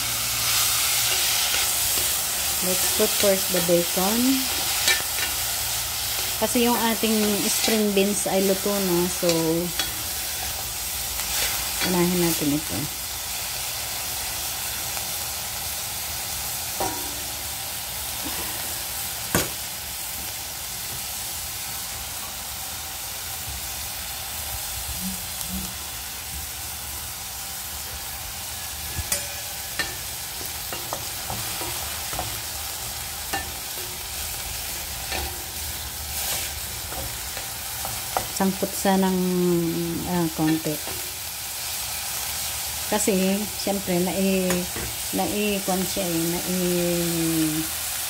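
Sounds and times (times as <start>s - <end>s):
bacon sizzling in a pan: 0.0s - 48.0s
wooden spatula scraping: 36.2s - 38.4s.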